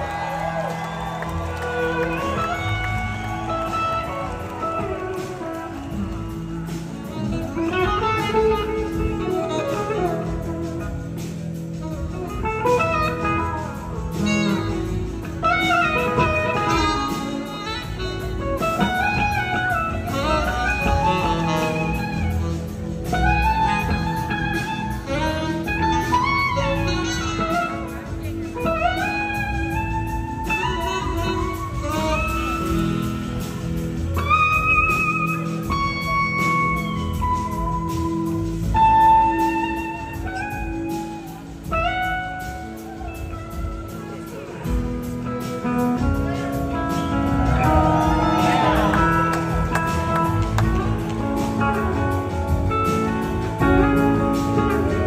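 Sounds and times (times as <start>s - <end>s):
blues-rock band playing: 0.0s - 55.0s
electric guitar lead: 0.0s - 55.0s.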